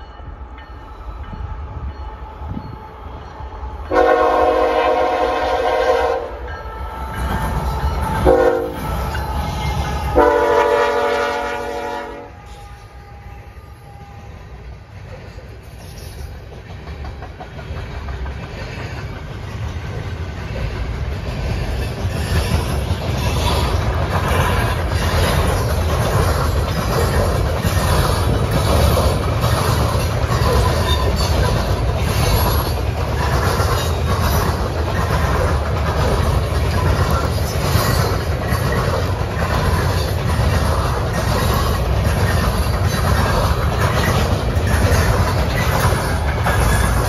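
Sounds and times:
train rolling rumble: 0.0 - 47.0
train wheels clacking over rail joints: 15.0 - 47.0.

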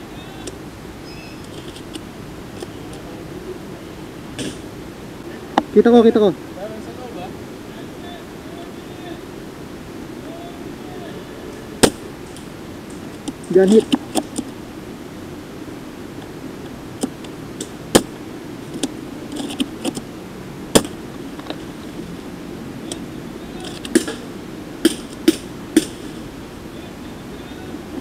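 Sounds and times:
steady background noise: 0.0 - 28.0
sharp clicks and snaps: 18.7 - 20.0.

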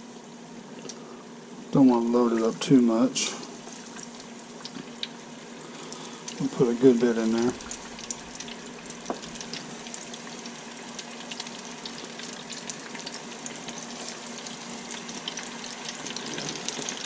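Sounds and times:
food frying in hot oil: 0.0 - 17.0.

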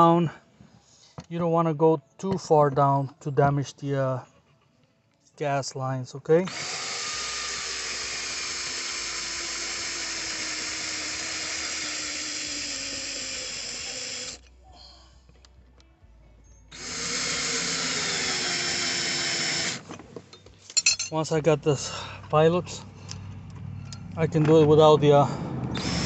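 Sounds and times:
cordless drill boring through metal: 6.5 - 14.4, 16.7 - 19.9, 25.7 - 26.0.

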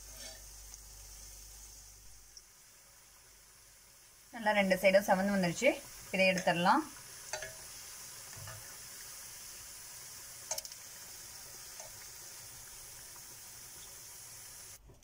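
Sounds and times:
oil sizzling while deep-frying: 0.0 - 15.0
spoon clicking on pan: 7.3 - 7.7, 10.4 - 10.8.

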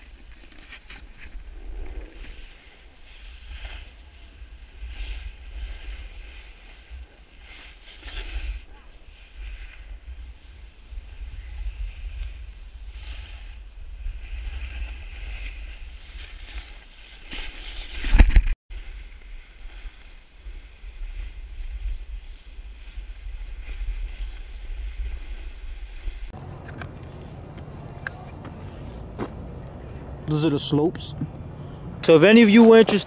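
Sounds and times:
wind rumbling on microphone: 0.0 - 16.8
snowboard scraping on snow: 0.0 - 30.8
steady outdoor hum: 26.4 - 33.0.

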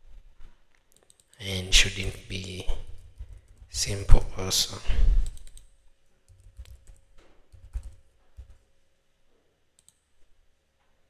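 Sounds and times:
computer keyboard typing: 5.2 - 5.7, 6.3 - 8.6.

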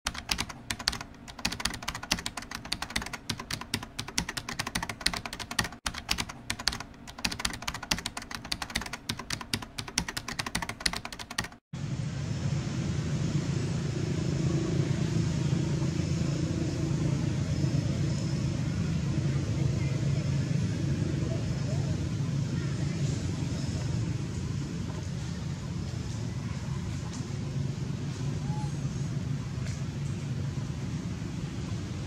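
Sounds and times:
rapid keyboard typing: 0.0 - 11.6.

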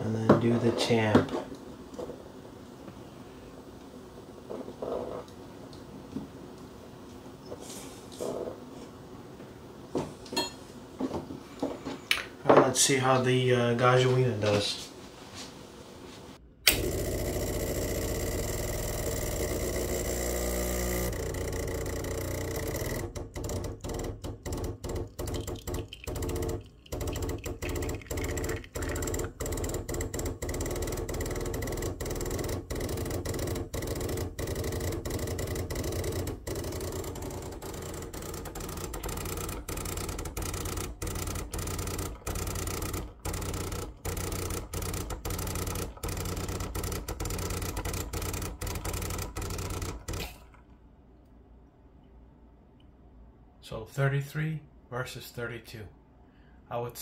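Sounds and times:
espresso machine pump buzzing: 4.4 - 5.4, 16.7 - 50.6.

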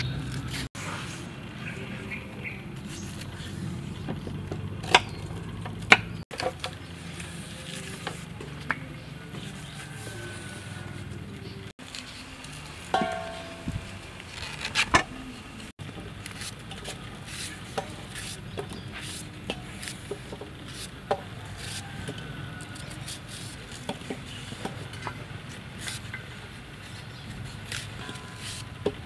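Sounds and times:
knife slicing vegetable stems: 16.2 - 20.9.

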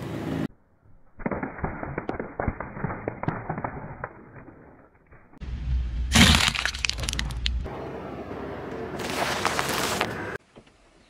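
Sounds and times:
low rumble: 5.2 - 8.1
brittle crunch under a tyre: 6.1 - 7.7, 9.0 - 10.4
eggshells cracking under a tyre: 6.1 - 7.7.

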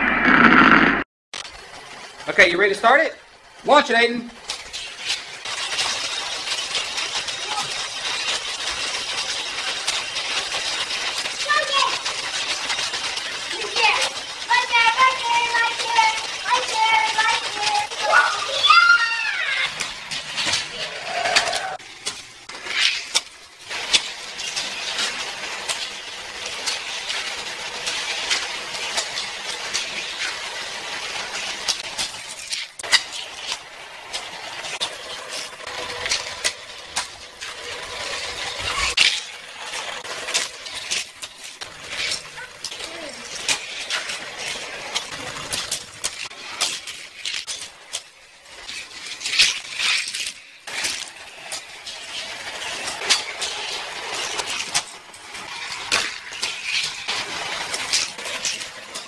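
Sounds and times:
whirring rush: 0.0 - 1.1
toy cars clattering on track: 1.4 - 59.0
toy track boosters whirring: 1.4 - 59.0.

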